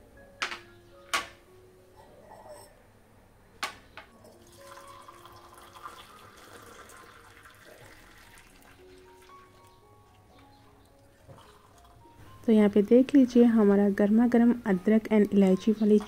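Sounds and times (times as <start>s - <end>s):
liquid pouring into cups: 4.2s - 9.7s, 11.0s - 12.0s.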